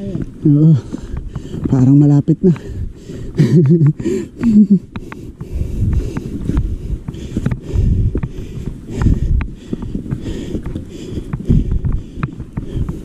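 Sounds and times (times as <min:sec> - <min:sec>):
bike clicking and rattling: 0:00.0 - 0:13.0
bike riding rumble: 0:00.0 - 0:13.0
wind on microphone: 0:00.0 - 0:13.0.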